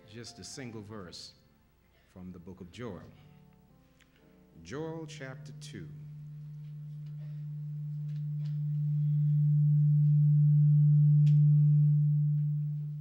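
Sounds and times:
low feedback howl: 5.0s - 13.0s.

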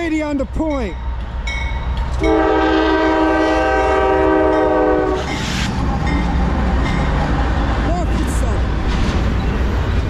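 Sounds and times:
locomotive engines rumbling: 0.0s - 10.0s
locomotive air horn: 2.2s - 5.4s.

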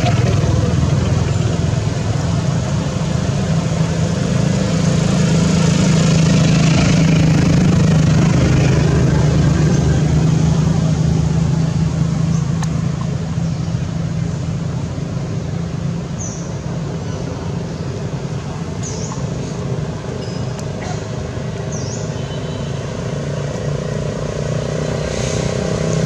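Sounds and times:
engine humming: 0.0s - 26.0s.

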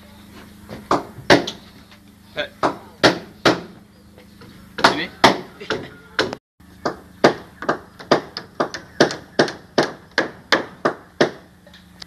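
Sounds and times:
hammer striking wood: 0.9s - 1.6s, 2.6s - 3.8s, 4.8s - 11.5s.

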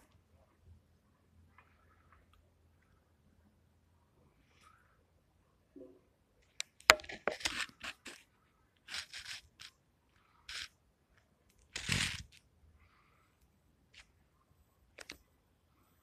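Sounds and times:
scraping noises: 11.8s - 12.4s.

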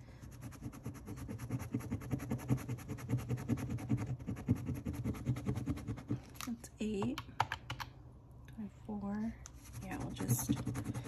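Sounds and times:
coin scratching scratch-off card: 9.7s - 11.0s.

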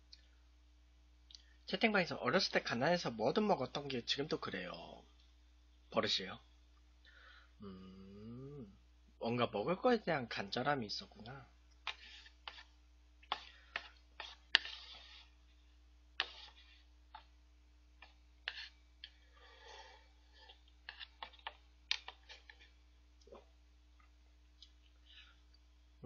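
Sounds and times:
mouth noises: 7.6s - 8.8s
chopsticks clicking and tapping: 20.9s - 22.6s.

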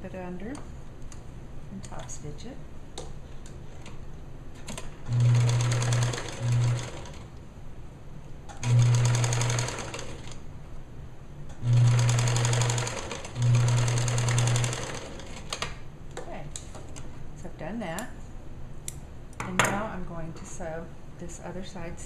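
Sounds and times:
electric sewing machine running: 5.0s - 7.3s, 8.6s - 10.4s, 11.6s - 15.6s.

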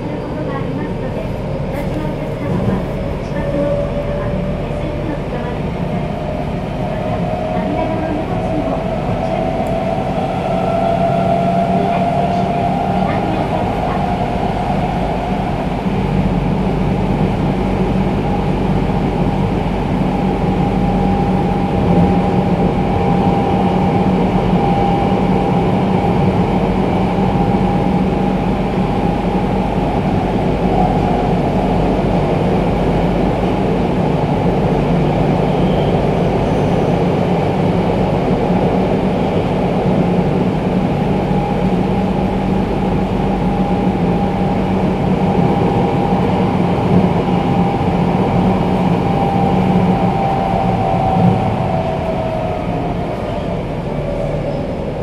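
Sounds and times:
subway train rumble: 0.0s - 55.0s.

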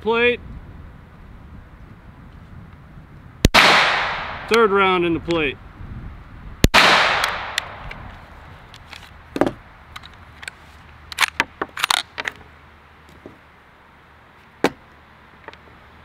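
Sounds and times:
gunshot echo: 3.4s - 4.6s, 6.6s - 7.9s
metallic gun handling clicks: 9.9s - 12.4s.

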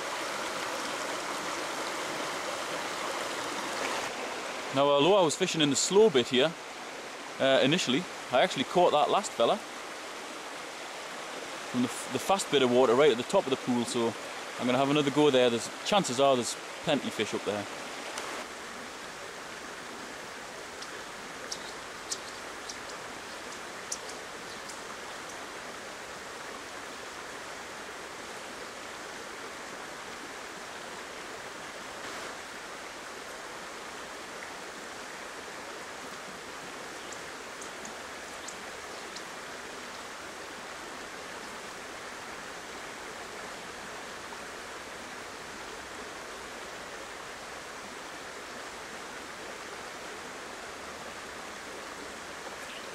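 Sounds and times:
water rushing over stones: 0.0s - 52.9s
faint high ticks: 20.8s - 25.4s, 37.0s - 39.3s.

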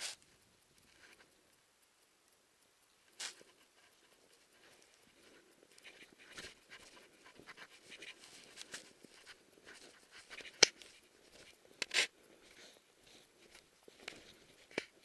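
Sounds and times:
sharp click: 0.0s - 15.0s
dog panting: 3.4s - 14.7s.

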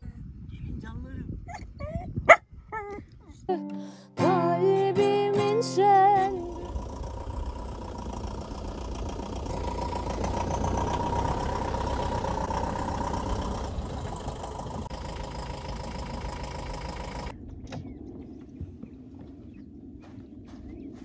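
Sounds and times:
diesel engine idling: 5.8s - 17.3s
faint low rumble: 6.1s - 21.0s.

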